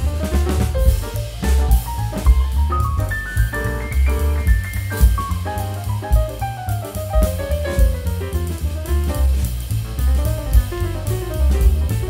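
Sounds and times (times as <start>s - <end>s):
upbeat music with drum beat: 0.0s - 8.8s.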